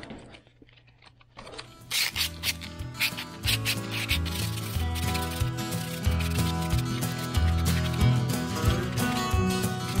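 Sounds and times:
background music with drums and bass: 2.2s - 10.0s.

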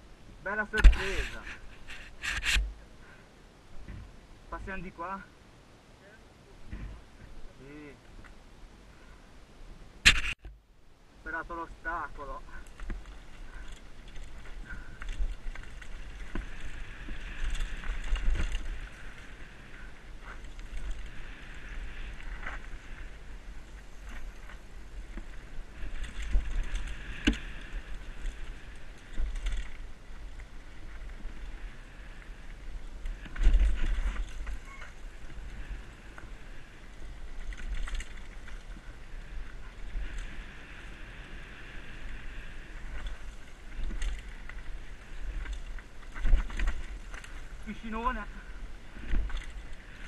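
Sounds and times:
tyres running over dirt: 11.9s - 50.0s
bike rattling over bumps: 12.6s - 50.0s.

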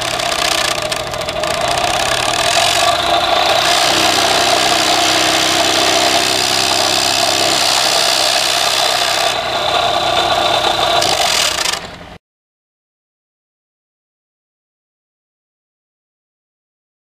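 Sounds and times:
excavator engine and hydraulic drone: 0.0s - 12.2s
vibrating post driver: 0.0s - 12.2s.

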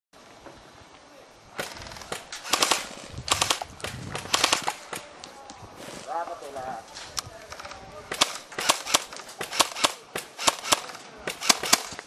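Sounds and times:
airsoft rifle rattling bursts: 1.6s - 5.1s, 7.5s - 12.0s.

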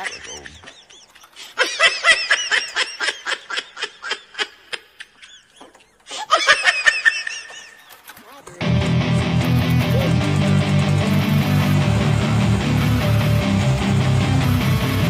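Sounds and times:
high-pitched giggling: 0.0s - 8.4s.

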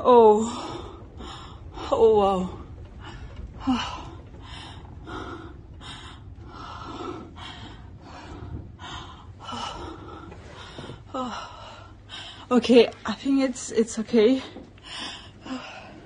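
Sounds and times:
person breathing heavily: 2.9s - 12.5s.

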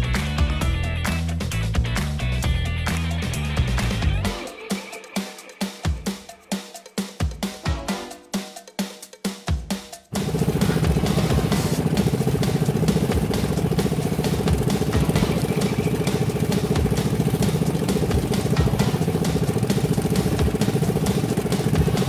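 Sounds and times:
jet ski engine running: 10.1s - 22.0s.

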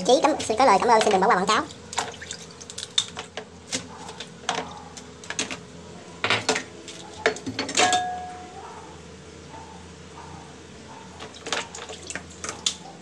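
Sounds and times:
metal clinking on crockery: 7.2s - 8.4s
kitchen utensils knocking: 7.3s - 8.4s.

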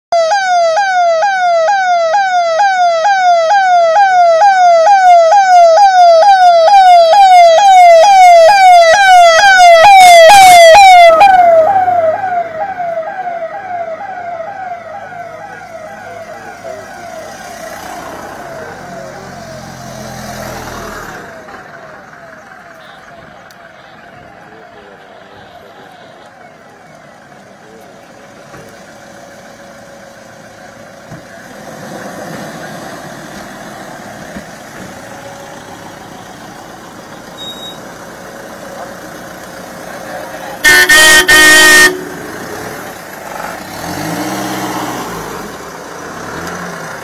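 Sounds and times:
siren yelping: 0.1s - 19.2s, 40.6s - 42.3s
passing engines rumbling: 0.2s - 47.0s.

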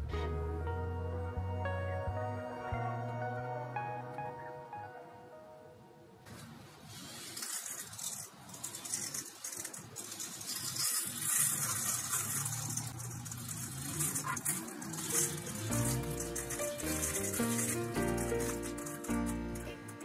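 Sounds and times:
glitter pattering: 7.4s - 20.0s.

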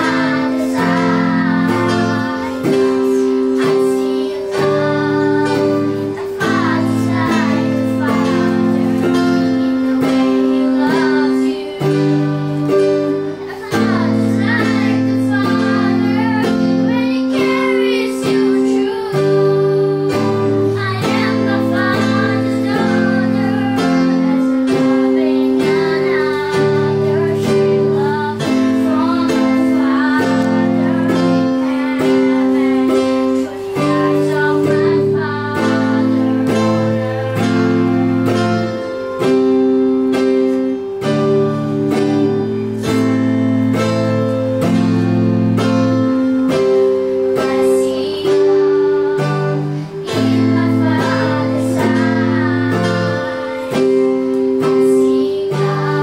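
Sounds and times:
girls singing together: 0.0s - 56.0s
held keyboard chords: 0.0s - 56.0s
strummed guitar: 0.0s - 56.0s.

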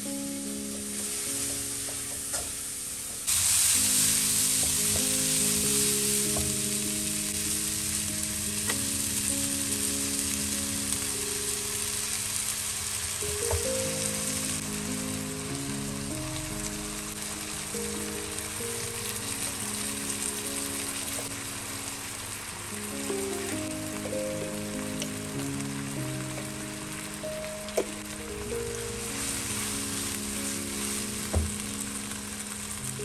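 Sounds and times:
soft background music: 0.0s - 33.0s
vegetables sizzling in hot oil: 0.0s - 33.0s.

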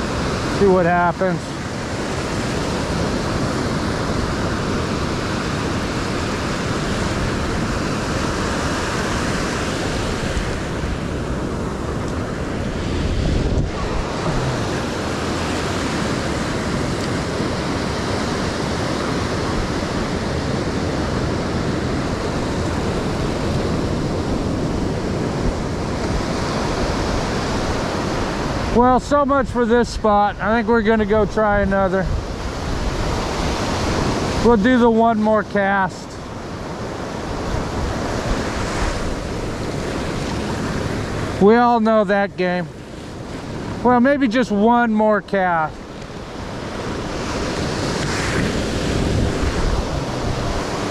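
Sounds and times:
ocean surf breaking: 0.0s - 50.9s
wind buffeting microphone: 1.6s - 34.5s, 45.4s - 50.9s.

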